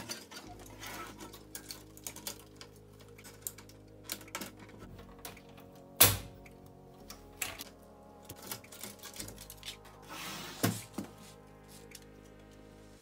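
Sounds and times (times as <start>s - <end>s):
plastic and metal parts clattering: 0.0s - 6.4s, 7.0s - 10.0s
background music: 0.0s - 13.0s.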